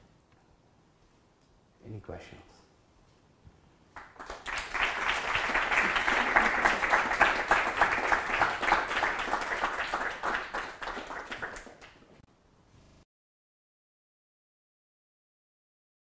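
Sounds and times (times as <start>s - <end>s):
audience applauding: 4.0s - 12.1s.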